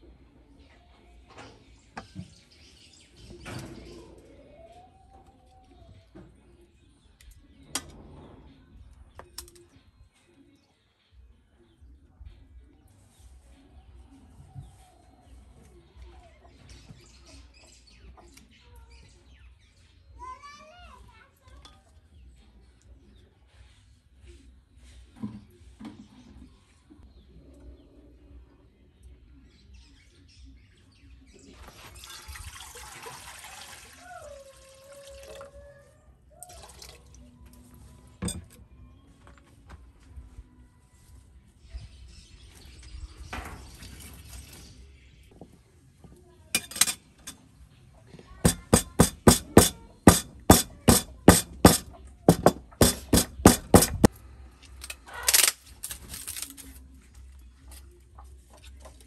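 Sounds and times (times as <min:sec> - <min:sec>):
water pouring into a metal pot: 0:31.6 - 0:35.5
pestle pounding in wooden mortar: 0:48.5 - 0:54.1.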